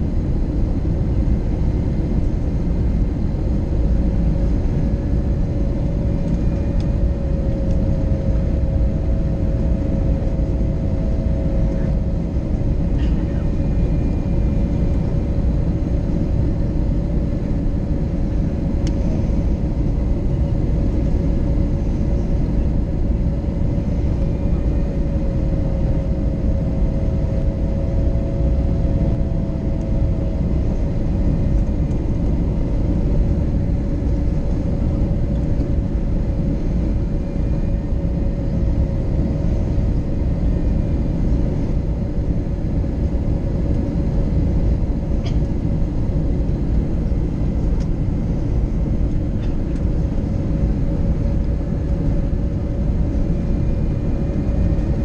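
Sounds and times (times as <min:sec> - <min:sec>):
airplane cabin airflow and engine drone: 0:00.0 - 0:55.0
mid-pitched hum: 0:00.0 - 0:55.0.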